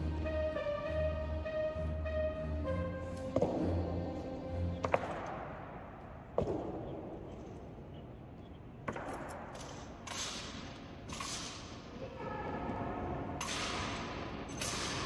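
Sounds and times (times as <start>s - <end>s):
boots stamping: 3.2s - 4.1s.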